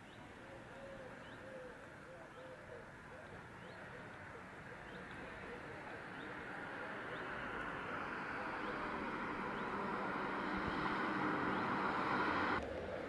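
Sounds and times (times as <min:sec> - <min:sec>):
street noise rush: 0:04.1 - 0:13.0
bird chirps: 0:08.5 - 0:11.8.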